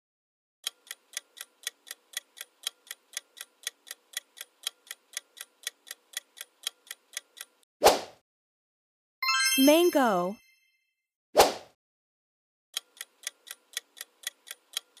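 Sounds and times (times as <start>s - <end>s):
clock ticking: 0.6s - 7.6s, 12.8s - 15.0s.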